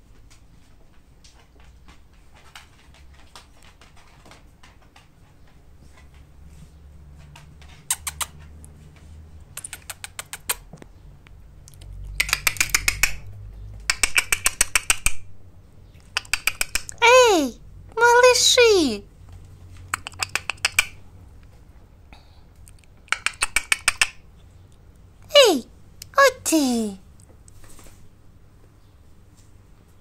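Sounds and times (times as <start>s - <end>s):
puppies' claws clicking: 0.2s - 15.3s, 15.9s - 17.2s, 19.3s - 21.6s, 22.6s - 24.8s.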